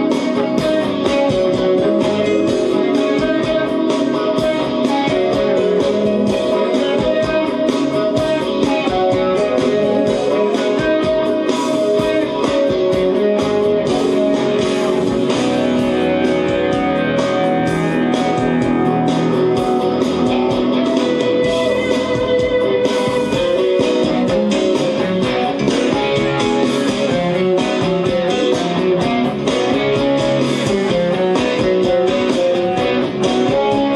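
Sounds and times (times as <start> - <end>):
band accompaniment with steady beat: 0.0 - 33.9
electric guitar solo: 0.0 - 33.9.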